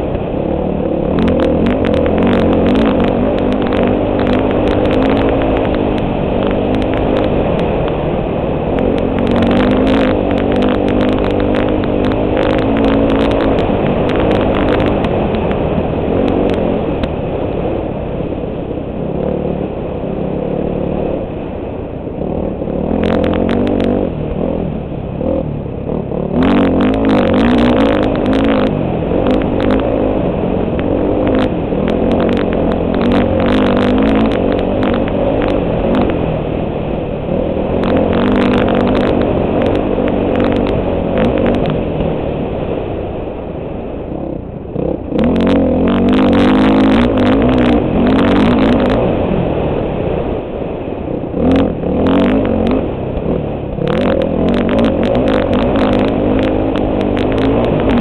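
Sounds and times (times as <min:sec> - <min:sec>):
dirt bike engine revving: 0:00.0 - 0:17.6, 0:22.1 - 0:42.5, 0:44.1 - 0:50.2, 0:51.2 - 0:58.0
sharp clicks and knocks: 0:01.0 - 0:08.0, 0:08.7 - 0:15.6, 0:30.7 - 0:36.3, 0:37.8 - 0:41.8.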